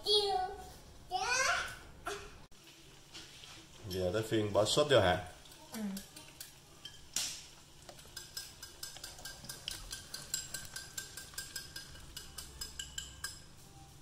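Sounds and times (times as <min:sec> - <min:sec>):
teaspoon clinking on ceramic bowl: 0:08.0 - 0:13.6.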